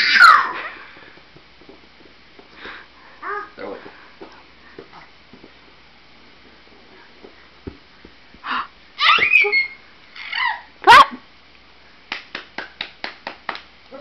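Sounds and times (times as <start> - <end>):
baby squealing: 9.0 - 10.7.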